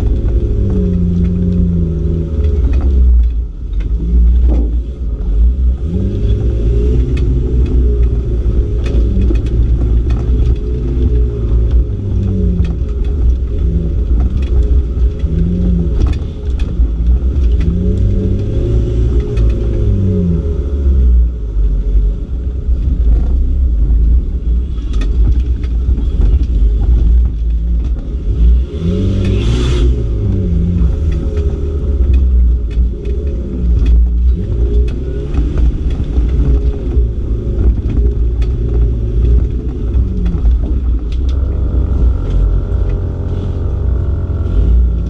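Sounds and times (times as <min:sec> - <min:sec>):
car body knocks and rattles: 0:00.0 - 0:05.6
car engine revving: 0:00.0 - 0:45.0.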